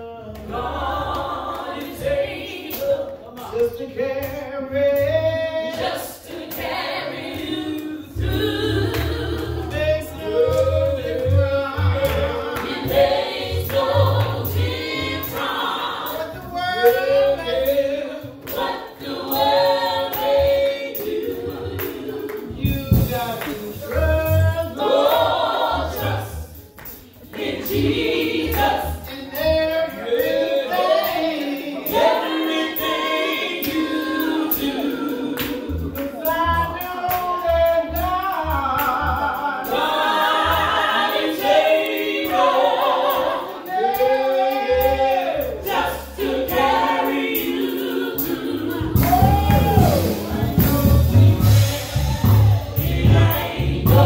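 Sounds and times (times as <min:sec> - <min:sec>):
women singing gospel song: 0:00.0 - 0:54.0.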